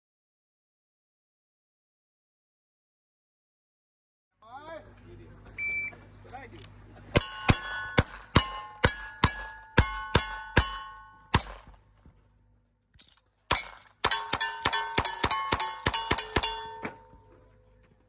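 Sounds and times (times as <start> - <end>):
steel target ringing: 7.2 - 11.8, 13.5 - 17.4.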